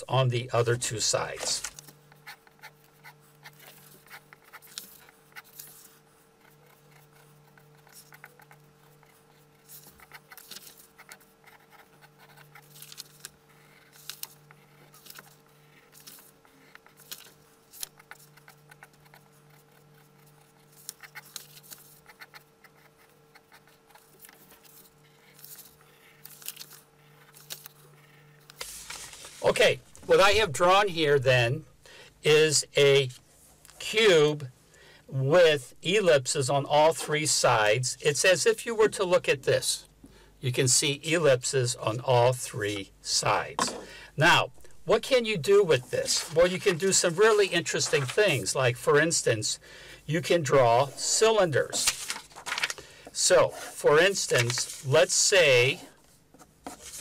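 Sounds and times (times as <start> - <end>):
pencil scratching on paper: 1.4 - 17.2, 17.8 - 26.4.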